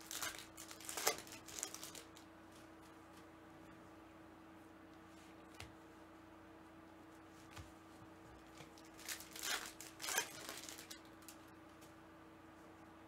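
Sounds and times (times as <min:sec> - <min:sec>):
plastic wrapper crinkling and tearing: 0:00.0 - 0:02.2, 0:08.8 - 0:11.4
faint steady hum: 0:00.0 - 0:13.0.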